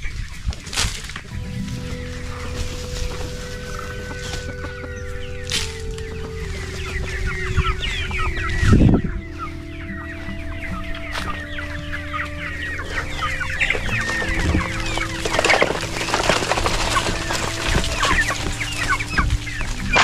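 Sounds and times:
chickens clucking and chirping: 0.0 - 20.0.

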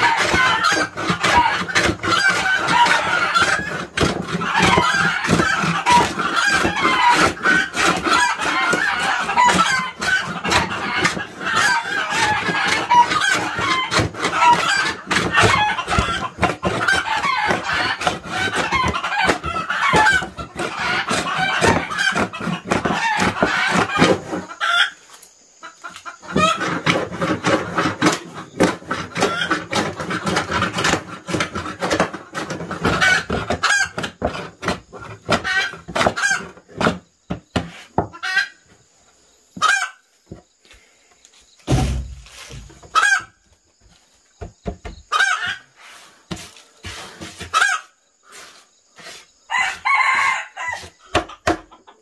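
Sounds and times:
chickens clucking: 0.0 - 52.0.

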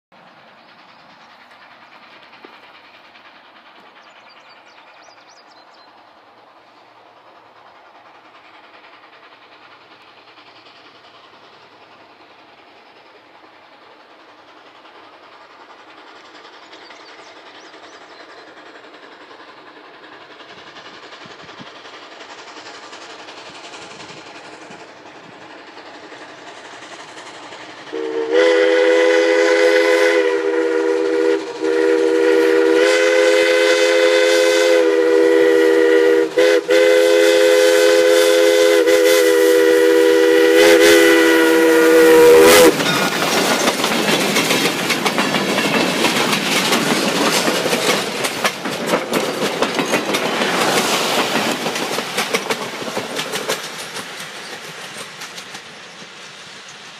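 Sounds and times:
train wheels clattering over rails: 0.2 - 56.9
steam locomotive chime whistle: 27.9 - 43.2.

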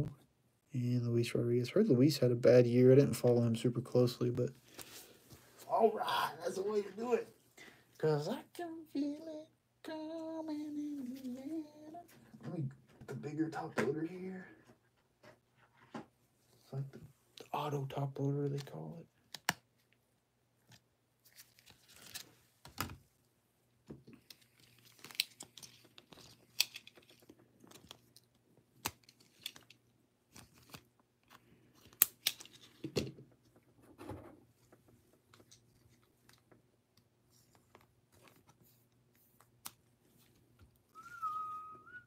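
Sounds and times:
plastic packaging crinkling: 24.2 - 30.9
high whistle-like tone: 41.0 - 42.0.

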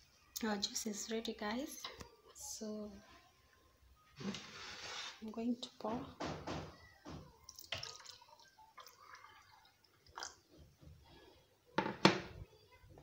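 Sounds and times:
juice pouring into a glass: 7.5 - 10.5
vessel knocking on countertop: 11.8 - 12.3.

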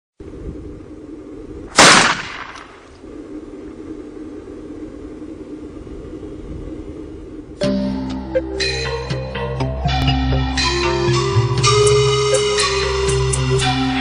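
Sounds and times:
steady low hum: 0.2 - 9.5
shotgun shot: 1.7 - 2.9.

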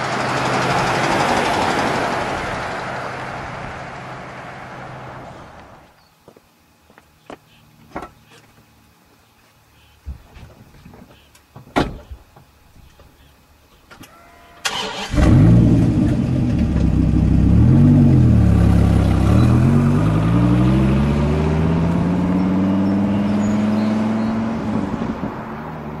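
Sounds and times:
car engine starting and accelerating: 0.0 - 5.6, 14.6 - 26.0.

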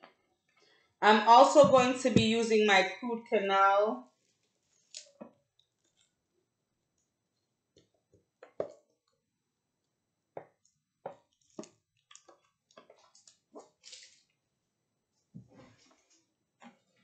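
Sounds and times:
soft squishes of cream: 4.1 - 6.2, 10.4 - 14.5, 15.1 - 17.0.

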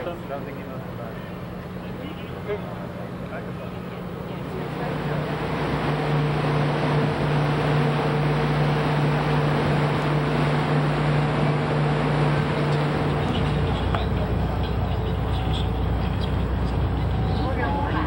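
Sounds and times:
boat engine droning: 0.0 - 18.0
wind: 0.0 - 18.0
rushing water: 4.6 - 18.0.

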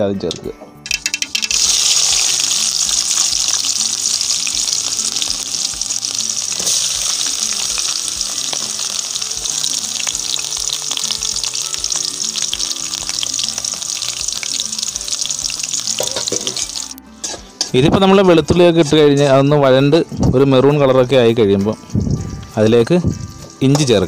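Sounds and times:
garlic sizzling in hot oil: 1.0 - 17.4, 21.6 - 24.0.

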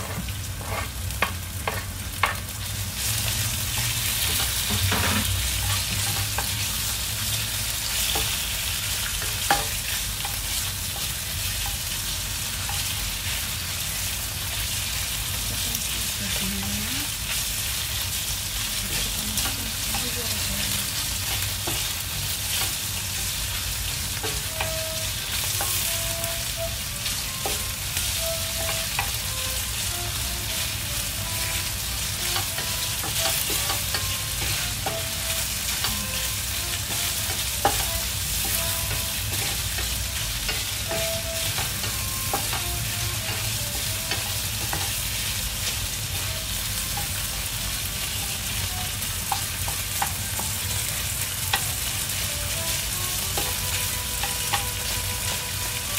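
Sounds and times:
wooden spatula scraping pan: 0.0 - 1.0
meat sizzling in oil: 0.0 - 55.9.

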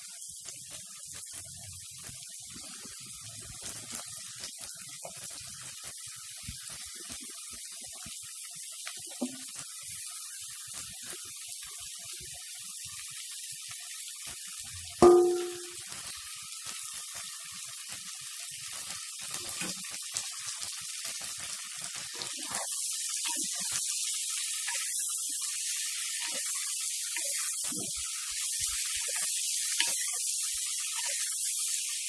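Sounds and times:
vegetables sizzling in pot: 0.0 - 32.0
metallic clang: 15.0 - 15.8.

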